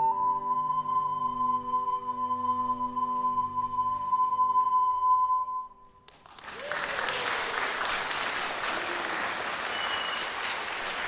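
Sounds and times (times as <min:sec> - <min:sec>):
audience applauding: 0:06.1 - 0:11.0.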